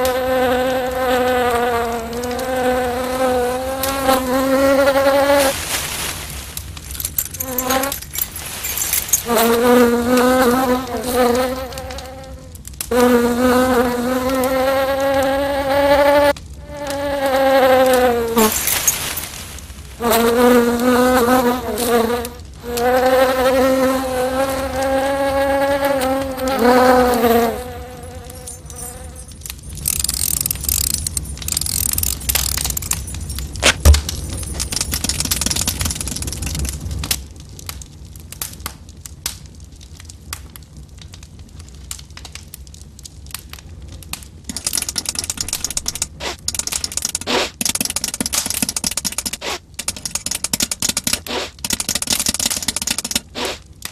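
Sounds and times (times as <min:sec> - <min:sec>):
fly buzzing: 0:00.0 - 0:06.0, 0:07.2 - 0:19.2, 0:20.0 - 0:32.8, 0:51.3 - 0:51.6, 0:53.2 - 0:53.6
scratching and rustling: 0:03.8 - 0:12.0, 0:17.9 - 0:22.0, 0:44.5 - 0:53.7.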